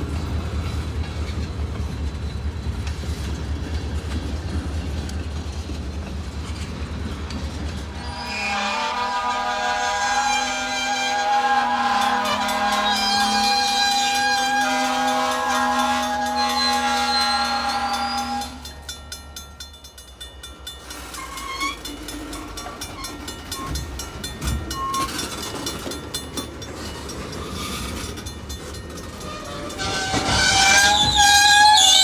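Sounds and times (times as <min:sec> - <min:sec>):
train cars rolling on rails: 0:00.0 - 0:32.0
locomotive horn: 0:08.0 - 0:18.7, 0:29.2 - 0:32.0
wheel squeals: 0:16.2 - 0:18.6, 0:20.9 - 0:23.8, 0:26.8 - 0:32.0.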